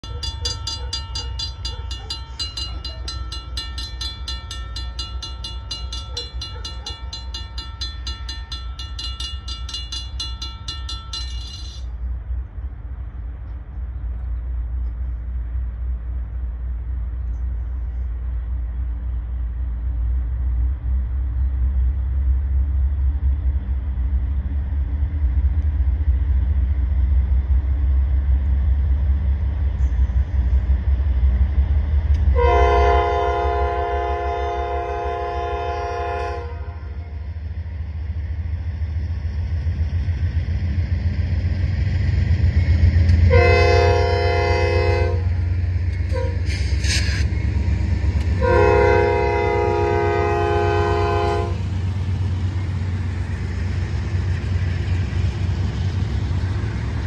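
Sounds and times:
railroad crossing bell ringing: 0.0 - 12.1
train rumble: 0.0 - 57.0.

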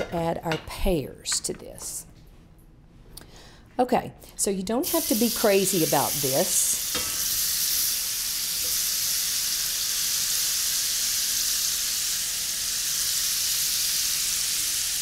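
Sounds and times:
butter sizzling in a skillet: 4.8 - 15.0.

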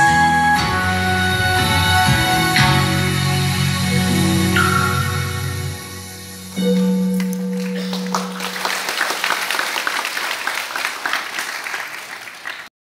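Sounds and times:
held music note: 0.6 - 8.9
audience applause: 6.8 - 12.7.

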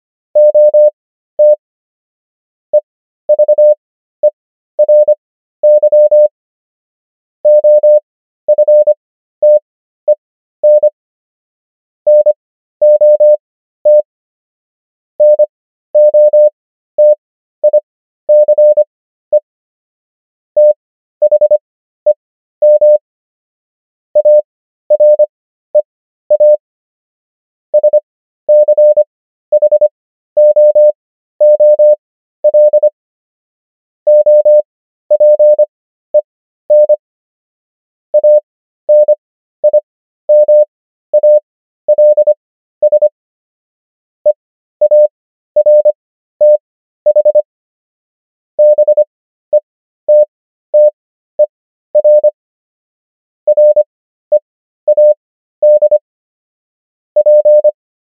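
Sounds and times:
morse code beeps: 0.4 - 1.6, 3.3 - 3.8, 4.8 - 6.3, 7.5 - 10.9, 12.1 - 14.0, 15.2 - 15.4, 16.0 - 19.4, 20.6 - 21.6, 22.6 - 23.0, 24.2 - 24.4, 25.0 - 25.2, 26.4 - 26.6, 27.8 - 32.9, 34.1 - 35.6, 36.7 - 37.0, 38.2 - 43.1, 44.8 - 47.4, 48.6 - 51.0, 52.0 - 52.4, 53.5 - 56.0, 57.2 - 57.8.

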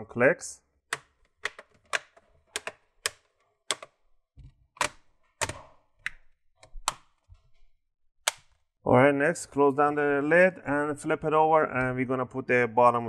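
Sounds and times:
plastic clips clicking: 1.0 - 4.0, 8.3 - 8.6.

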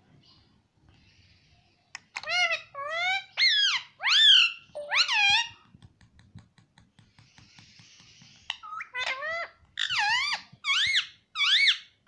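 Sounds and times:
parakeet calling: 2.2 - 5.6, 7.8 - 12.0.

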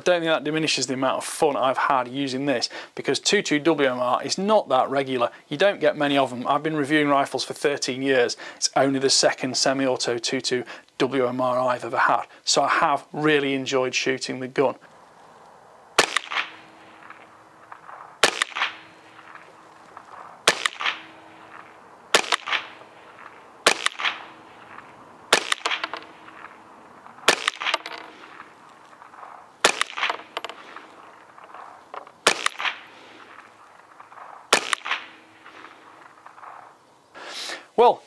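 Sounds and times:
suppressed rifle shots: 16.0 - 36.7.

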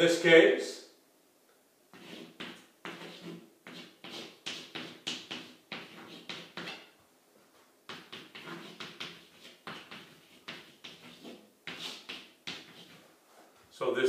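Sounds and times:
chalk scratching on blackboard: 1.9 - 6.9, 7.9 - 13.1.

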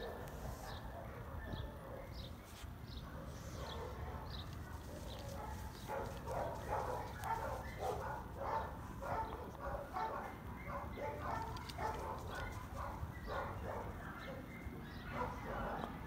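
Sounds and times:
dog barking rapidly: 3.4 - 15.8.

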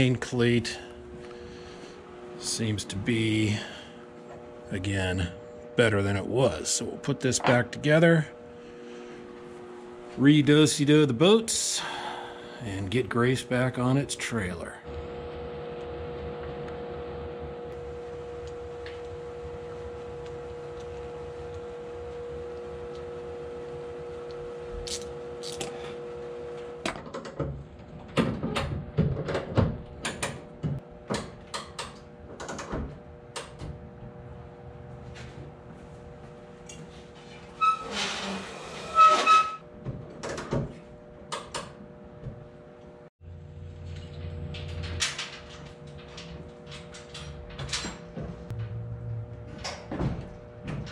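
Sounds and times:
steady tonal hum: 0.0 - 26.8, 34.5 - 39.6
rasping squeal: 37.6 - 39.6.

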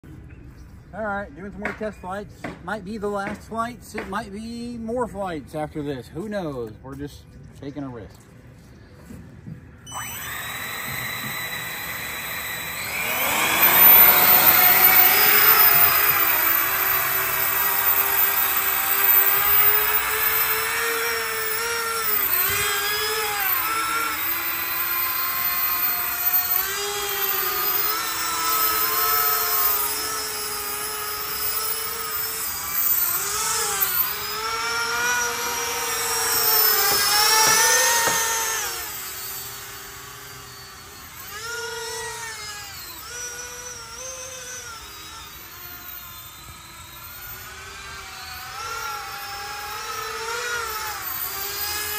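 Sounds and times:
electric ducted fans whining: 8.2 - 51.9.

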